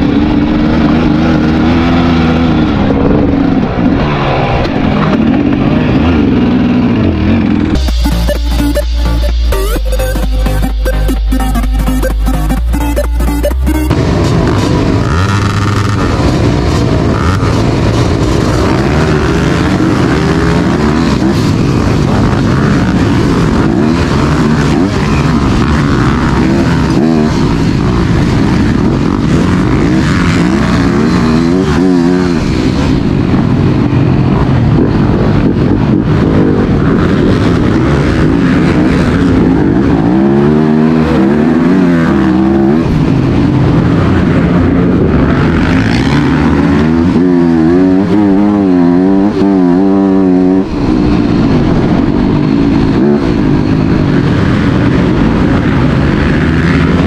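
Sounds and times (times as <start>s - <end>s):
racing motorcycle engines revving: 0.0s - 57.0s.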